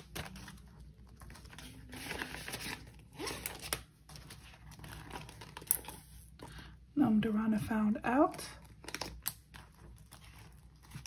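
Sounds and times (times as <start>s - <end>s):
banknotes rustling: 0.0s - 6.4s.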